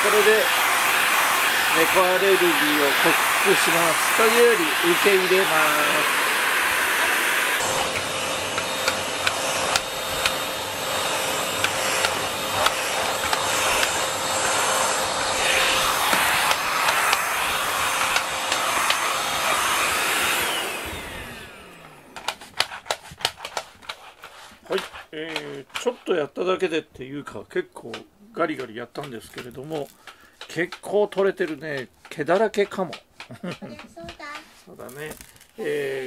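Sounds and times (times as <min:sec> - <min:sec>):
vacuum motor winding down: 0:00.0 - 0:22.4
stick vacuum running: 0:00.0 - 0:23.0
sharp clicks and knocks: 0:22.2 - 0:24.0, 0:27.8 - 0:35.3.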